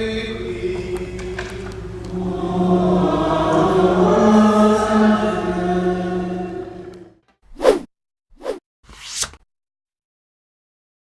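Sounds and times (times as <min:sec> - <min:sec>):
group singing slow chant: 0:00.0 - 0:07.2.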